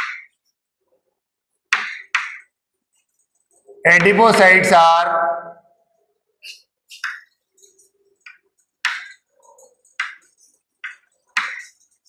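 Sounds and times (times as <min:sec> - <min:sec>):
chalk writing on chalkboard: 0:06.4 - 0:12.0.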